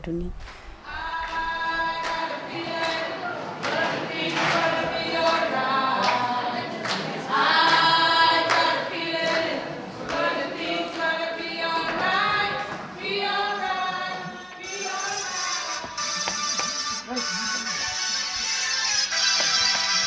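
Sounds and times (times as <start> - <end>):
choir singing: 0.9 - 16.1.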